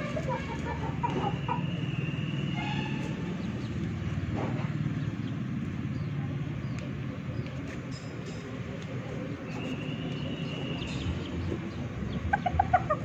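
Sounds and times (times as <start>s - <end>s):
young chickens clucking and peeping: 0.2s - 2.0s, 9.5s - 13.0s.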